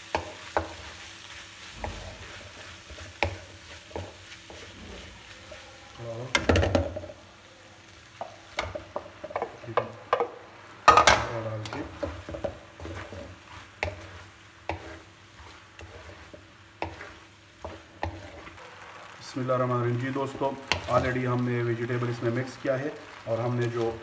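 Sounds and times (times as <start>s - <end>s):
spatula scraping metal pot: 12.8s - 18.6s.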